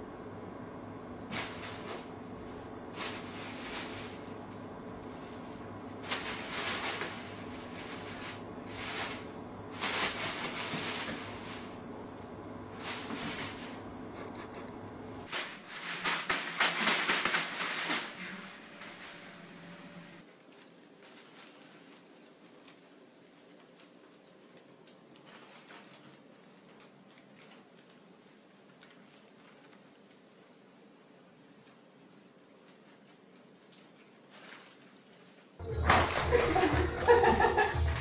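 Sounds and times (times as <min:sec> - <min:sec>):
plastic bags crinkling: 0:01.3 - 0:13.9, 0:15.2 - 0:30.1, 0:32.6 - 0:35.4.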